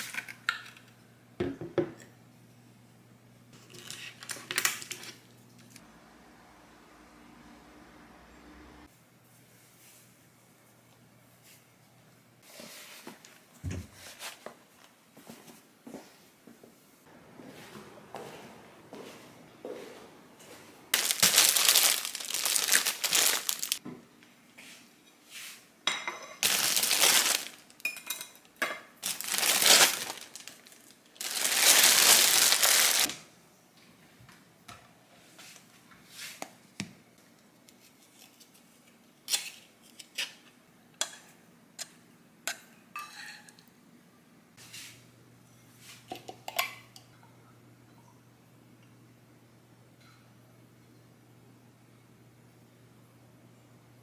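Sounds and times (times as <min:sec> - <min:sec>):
low steady hum: 0:00.8 - 0:09.2
dishes clinking: 0:25.8 - 0:26.5, 0:27.8 - 0:28.9, 0:42.5 - 0:43.7.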